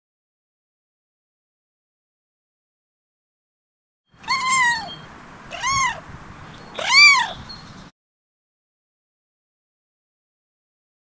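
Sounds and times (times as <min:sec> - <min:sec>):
kitten meowing: 0:04.2 - 0:06.0, 0:06.7 - 0:07.5.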